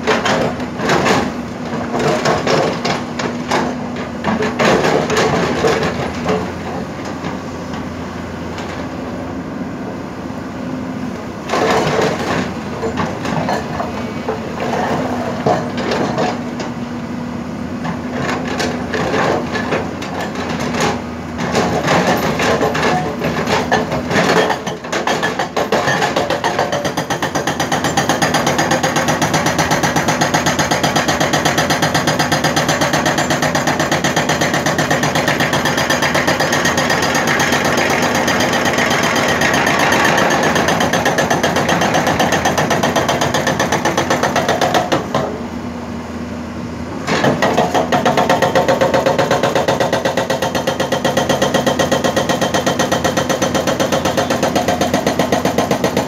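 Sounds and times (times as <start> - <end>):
excavator engine hum: 0.0 - 56.0
hydraulic rock breaker hammering: 17.9 - 45.5, 47.0 - 56.0.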